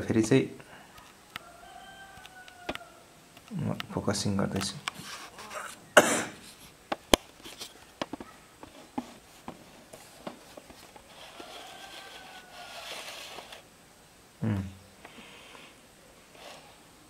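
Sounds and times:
rustle: 8.6 - 13.7.

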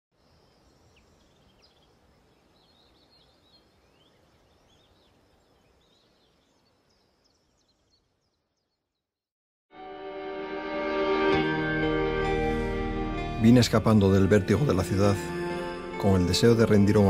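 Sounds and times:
small birds chirping: 0.2 - 9.2.

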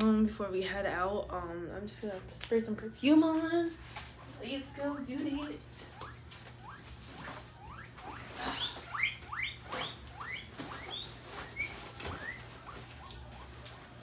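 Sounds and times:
small animal squeaking: 5.8 - 13.7.

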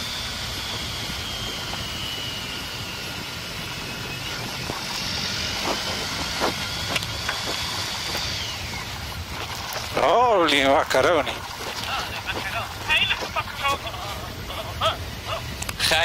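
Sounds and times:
faint high whine: 0.0 - 16.0
motorcycle engine: 0.0 - 16.0
wind and road rumble: 0.0 - 16.0.

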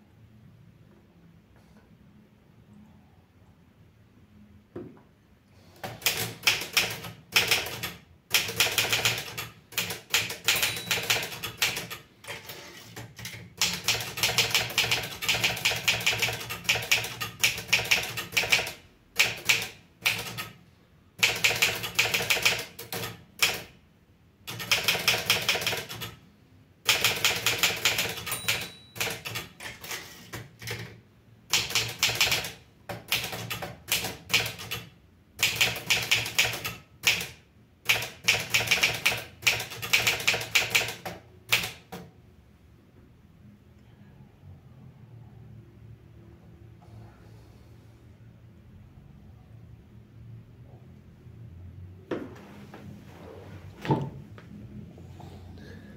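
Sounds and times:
manual typewriter key strikes: 5.9 - 12.1, 26.9 - 30.9.

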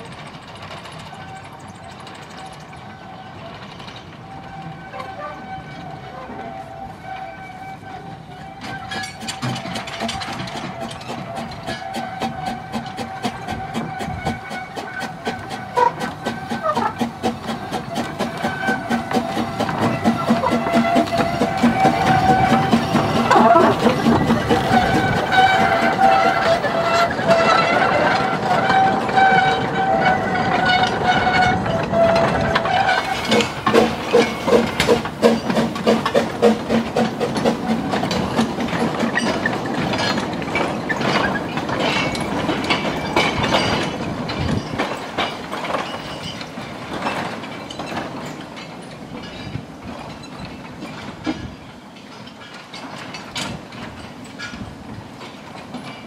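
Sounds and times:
steam locomotive exhaust beats: 0.0 - 56.0
wheels clicking on rail joints: 0.0 - 56.0
steam locomotive whistle: 4.2 - 38.1.

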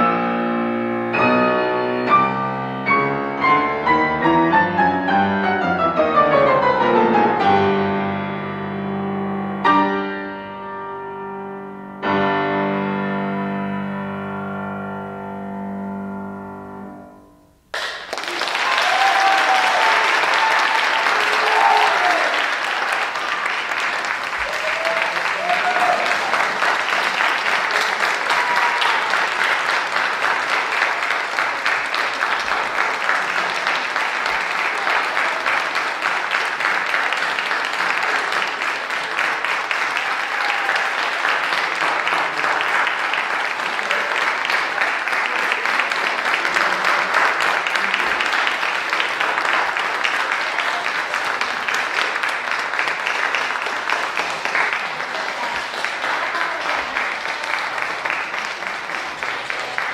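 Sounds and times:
audience applauding: 17.7 - 59.9.

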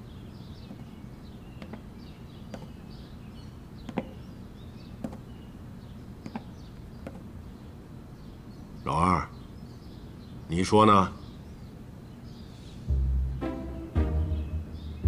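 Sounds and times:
faint bird chirps: 0.0 - 13.0
sharp taps: 1.6 - 1.9, 2.5 - 2.8, 3.8 - 4.2, 5.0 - 5.3, 6.2 - 7.3
low hum: 12.8 - 15.0.

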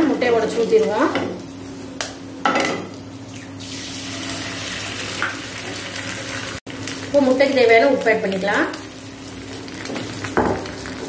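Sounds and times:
egg sizzling in hot oil: 3.0 - 11.0.

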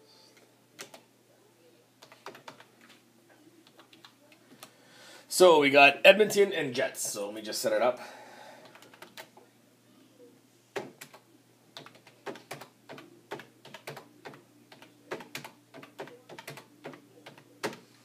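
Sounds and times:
typing on computer keyboard: 2.0 - 2.7, 8.6 - 9.3, 11.8 - 17.8.

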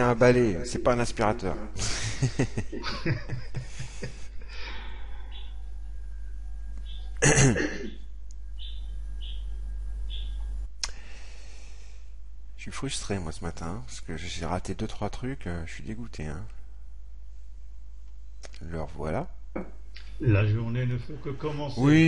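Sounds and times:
low electrical hum: 0.0 - 22.0
man murmuring and breathing: 1.7 - 5.3.

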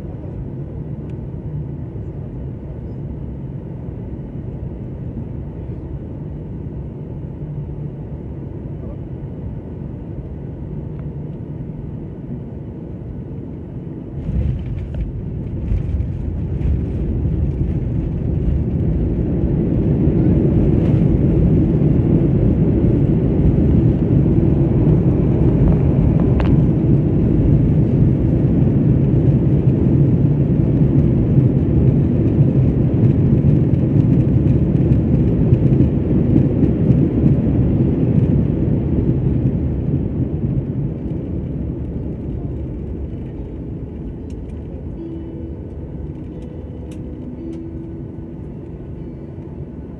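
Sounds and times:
jet engine and air noise: 0.0 - 49.9
reverse thrust rumble: 14.0 - 49.8.

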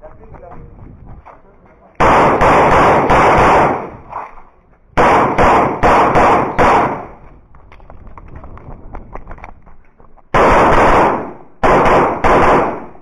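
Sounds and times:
faint clicks and scuffs: 0.0 - 2.0, 4.0 - 4.9, 7.2 - 10.3
pistol shots: 2.0 - 4.1, 5.0 - 7.2, 10.4 - 13.0.

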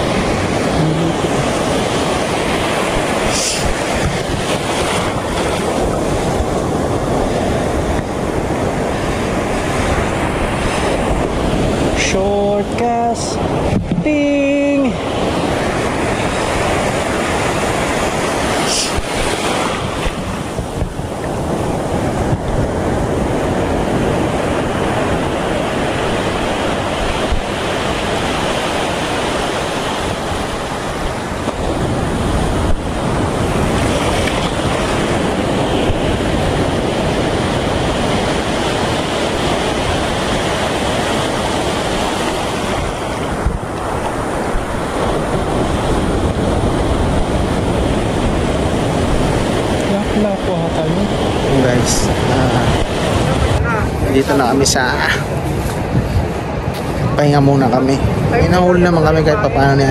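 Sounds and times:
surf breaking on rocky shore: 0.0 - 59.9
wind buffeting microphone: 0.0 - 59.9.

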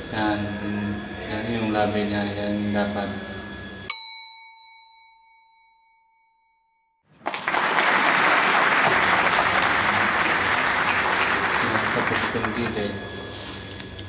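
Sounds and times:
metallic chime ding: 3.8 - 7.0
applause: 7.1 - 13.0.

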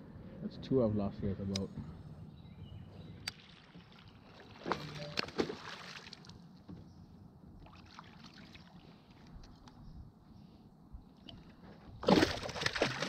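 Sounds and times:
low water background: 0.0 - 13.0.

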